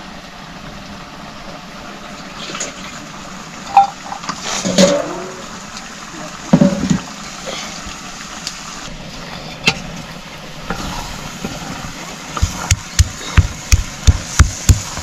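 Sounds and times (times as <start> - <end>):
sharp knocks: 12.4 - 15.0.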